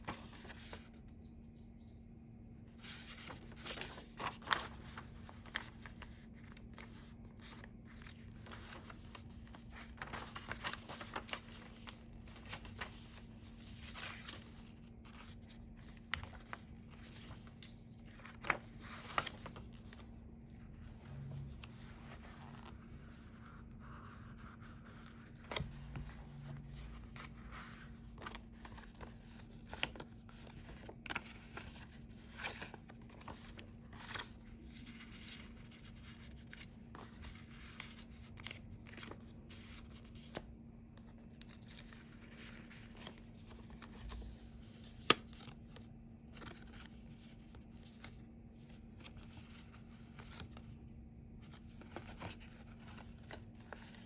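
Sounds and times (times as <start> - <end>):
paper rustling and sliding: 0.0 - 1.0, 2.8 - 20.1, 20.8 - 50.7, 51.4 - 54.0
faint steady hum: 0.0 - 54.0.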